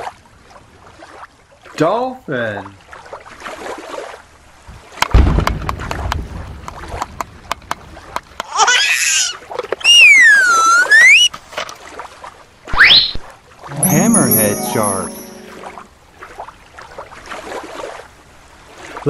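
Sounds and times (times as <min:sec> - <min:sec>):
sliding whistle-like tone: 0:09.9 - 0:11.3.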